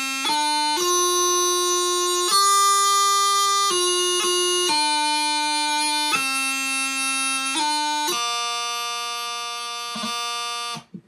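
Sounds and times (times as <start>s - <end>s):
practice chanter playing a march: 0.0s - 10.9s.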